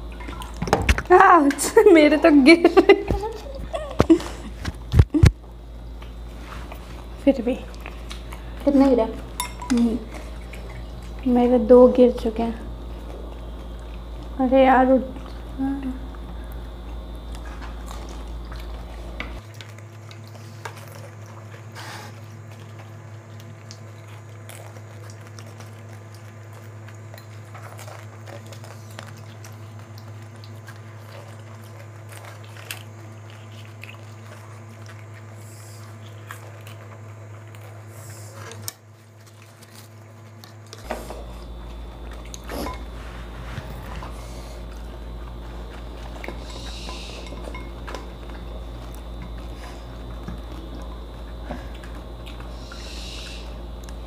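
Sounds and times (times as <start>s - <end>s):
crisp shells being chewed: 3.4s - 11.3s, 15.1s - 54.0s
low hum: 40.7s - 54.0s.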